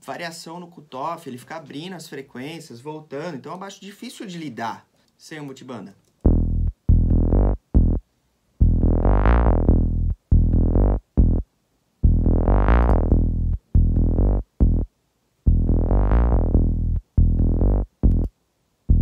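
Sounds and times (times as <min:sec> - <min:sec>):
synth bass line with filter sweeps: 0:06.3 - 0:08.0, 0:08.6 - 0:11.4, 0:12.0 - 0:14.9, 0:15.5 - 0:18.3.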